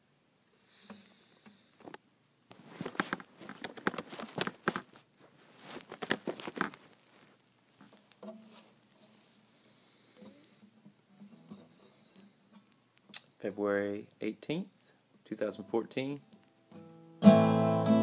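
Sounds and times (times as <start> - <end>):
phone handling scrapes and clicks: 1.8 - 7.3.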